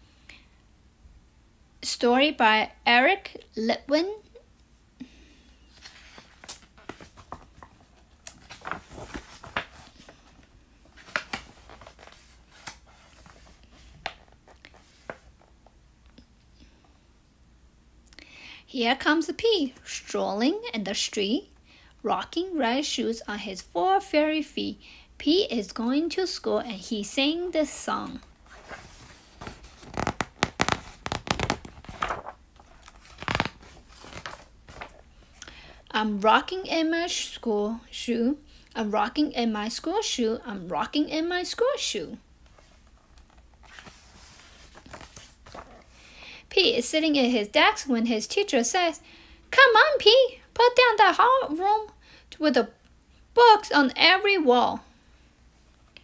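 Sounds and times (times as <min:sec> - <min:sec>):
book pages turning: 0:05.7 - 0:15.5, 0:27.8 - 0:35.2, 0:42.4 - 0:46.0
paper rustling: 0:05.7 - 0:15.5, 0:27.6 - 0:35.1, 0:42.5 - 0:46.0.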